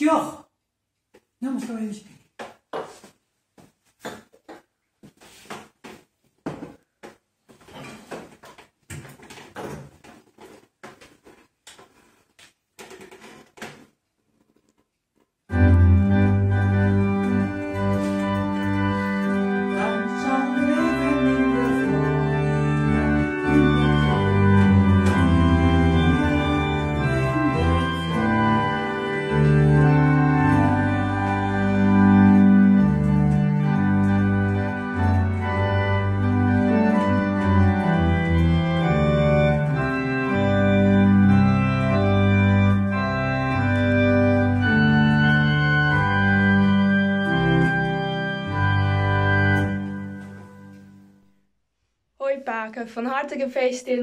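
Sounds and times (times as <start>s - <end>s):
organ playing chords: 15.5s - 51.3s.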